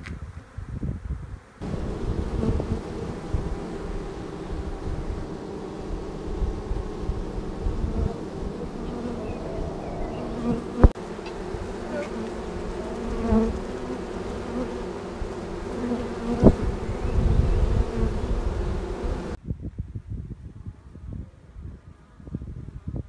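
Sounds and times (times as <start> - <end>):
bee swarm buzzing: 1.6 - 19.4.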